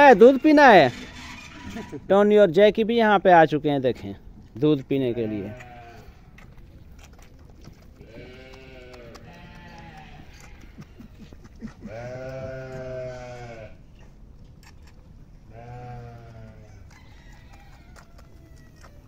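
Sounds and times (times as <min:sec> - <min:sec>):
sheep bleating: 0:05.0 - 0:06.2, 0:08.0 - 0:11.1, 0:11.8 - 0:13.8, 0:15.5 - 0:16.6.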